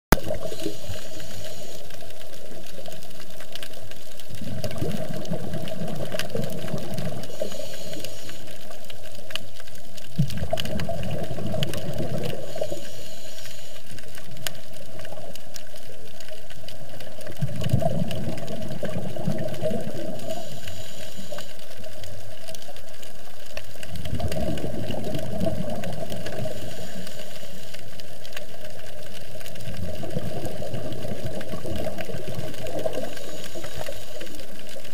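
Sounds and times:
bubbling exhale: 0.2 - 3.0, 4.3 - 8.9, 10.1 - 15.3, 17.0 - 22.3, 23.8 - 28.6, 29.3 - 34.9
underwater hiss: 0.2 - 34.9
regulator hissing inhale: 0.3 - 2.5, 7.1 - 8.8, 12.2 - 14.2, 19.9 - 22.1, 26.0 - 28.2, 32.5 - 34.6.

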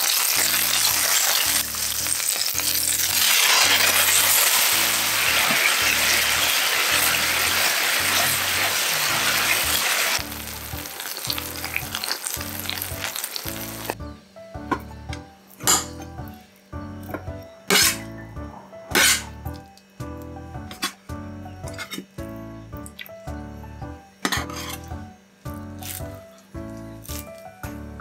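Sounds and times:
eggplant sizzling in a pan: 0.0 - 14.2, 17.7 - 18.1, 18.9 - 20.0, 24.2 - 27.8
background music with low beat: 12.4 - 28.0.

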